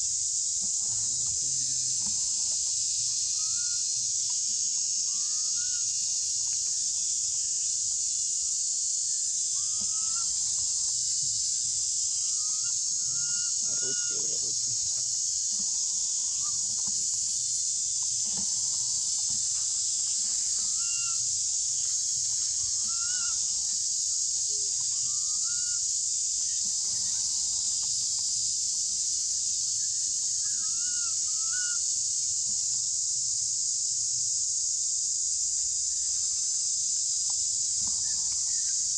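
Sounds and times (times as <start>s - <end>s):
insect chorus drone: 0.0s - 38.9s
rising squeaky calls: 9.6s - 10.9s, 11.5s - 14.8s, 18.2s - 21.4s, 22.5s - 23.8s.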